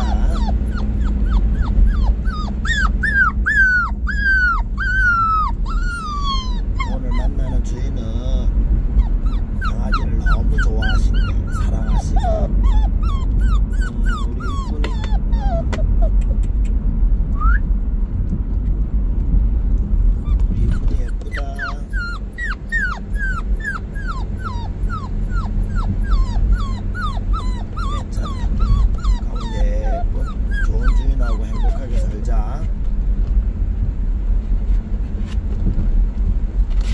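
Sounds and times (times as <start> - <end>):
puppy whimpering: 0.0 - 16.8, 20.1 - 32.7
car rumble: 0.0 - 36.9.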